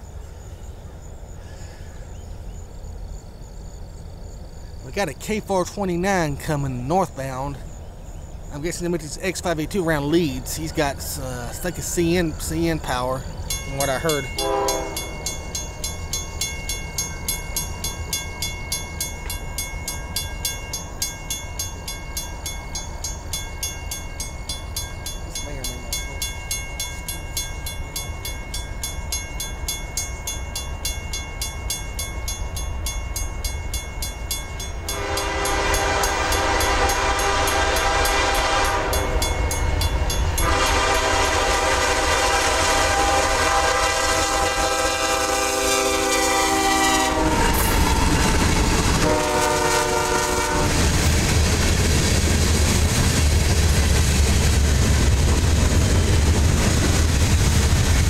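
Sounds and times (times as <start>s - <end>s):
crossing bell ringing: 8.6s - 42.3s, 45.7s - 50.7s
locomotive horn blasts: 14.1s - 15.3s, 34.8s - 39.3s, 40.4s - 50.9s.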